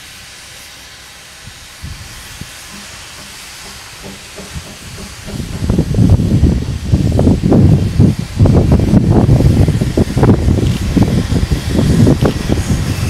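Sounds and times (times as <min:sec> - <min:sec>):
steam locomotive hissing: 0:00.0 - 0:13.0
loud low rumbling: 0:02.7 - 0:13.0.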